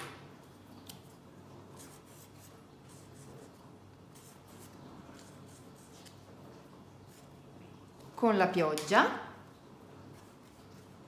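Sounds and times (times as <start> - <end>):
marker scratching on paper towel: 1.7 - 6.2.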